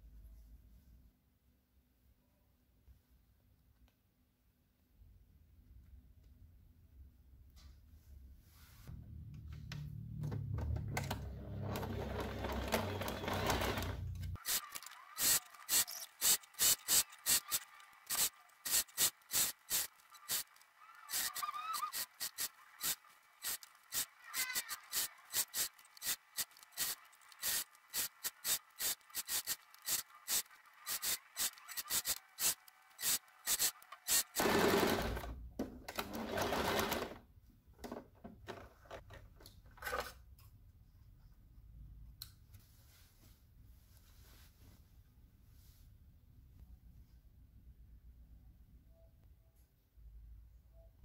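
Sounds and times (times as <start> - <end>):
sewing machine stitching: 10.9 - 37.2.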